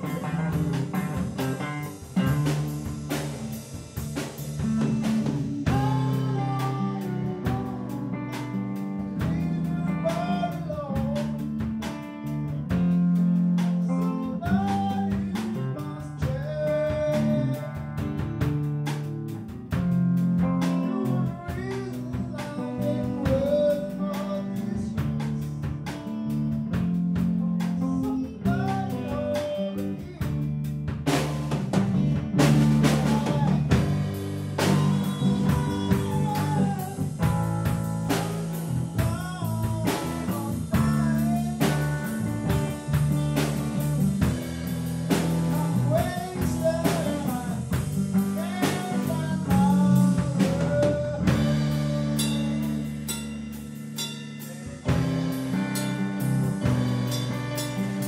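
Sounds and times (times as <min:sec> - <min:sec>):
lead guitar bending notes: 0:00.0 - 0:03.8
drum kit: 0:00.0 - 0:58.0
rock band playing: 0:00.0 - 0:58.0.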